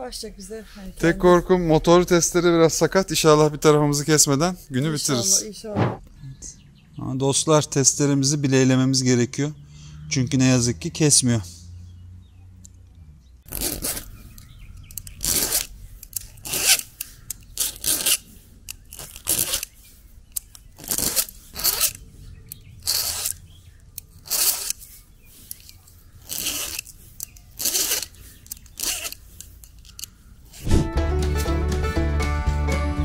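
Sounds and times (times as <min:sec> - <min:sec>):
file rasping on chainsaw chain: 0:13.5 - 0:14.1, 0:15.0 - 0:19.8, 0:20.8 - 0:22.0, 0:22.8 - 0:23.4, 0:24.2 - 0:30.1.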